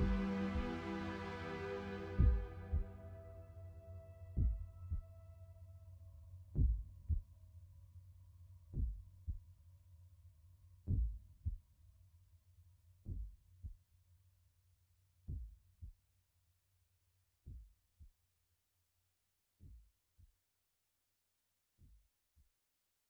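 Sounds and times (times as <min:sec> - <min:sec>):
heartbeat thumps: 0:00.0 - 0:00.8, 0:02.2 - 0:02.9, 0:04.4 - 0:05.0, 0:06.6 - 0:07.2, 0:08.8 - 0:09.4, 0:10.9 - 0:11.6, 0:13.1 - 0:13.3
low music drone: 0:00.0 - 0:05.6.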